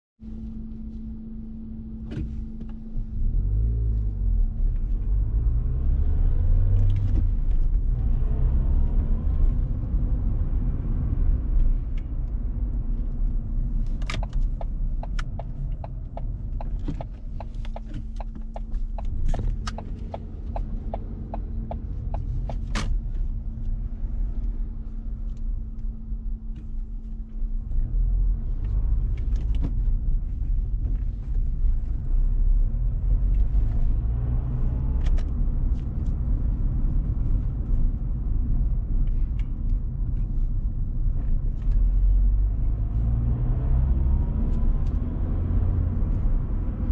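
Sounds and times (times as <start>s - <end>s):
car engine and road rumble: 0.2s - 46.9s
steady ticking clicks: 13.9s - 22.7s.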